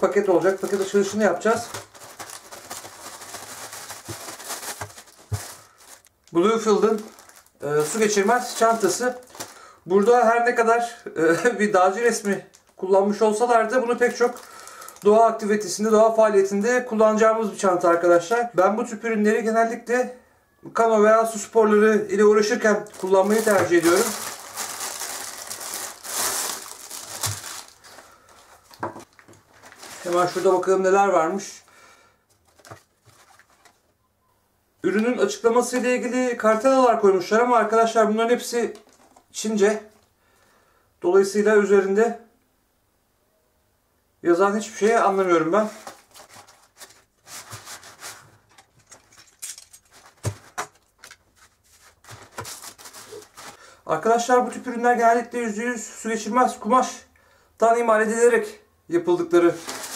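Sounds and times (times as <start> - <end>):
plastic packaging crinkling and tearing: 0.0 - 9.7, 13.9 - 15.2, 22.8 - 30.8, 32.4 - 33.8, 45.6 - 53.6, 59.5 - 59.9
soft plastic rustles: 0.0 - 10.1, 11.3 - 15.8, 22.3 - 34.0, 38.6 - 40.2, 44.8 - 54.2, 59.3 - 59.9
fabric bag rustling and scraping: 0.4 - 6.1, 22.9 - 28.7, 29.4 - 30.7, 59.5 - 59.9.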